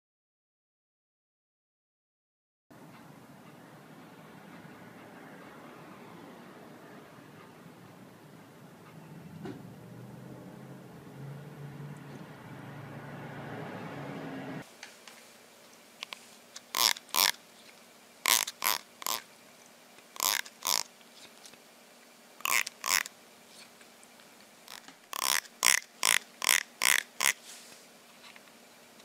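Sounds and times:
plastic comb teeth strummed: 24.7 - 27.4.

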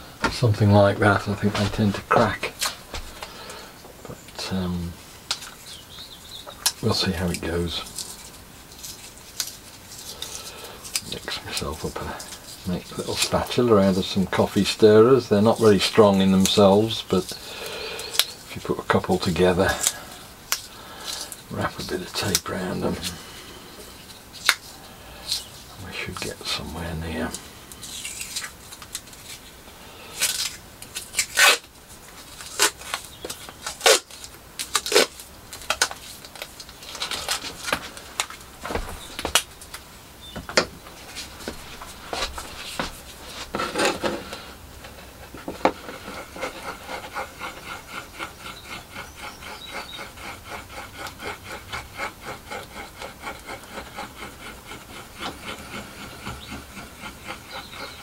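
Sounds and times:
masking tape ripping: 30.2 - 39.8
spatula scraping on plywood: 41.0 - 58.0.

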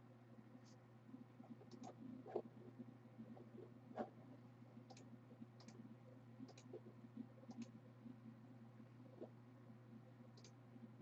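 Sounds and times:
low steady hum: 0.0 - 11.0
computer mouse clicks: 1.6 - 2.5, 4.9 - 5.8, 6.4 - 6.8, 7.4 - 7.8, 10.4 - 10.6.

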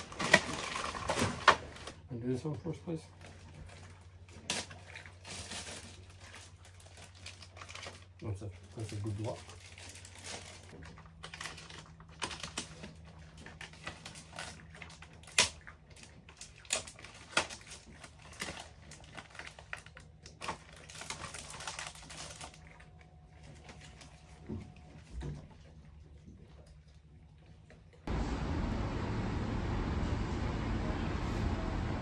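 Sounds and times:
plastic packaging crinkling: 0.0 - 2.0, 3.2 - 25.0.

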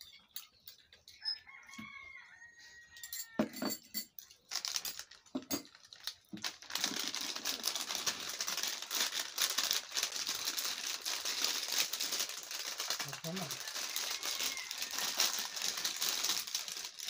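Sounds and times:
plastic snack packets crinkling: 4.3 - 17.0.

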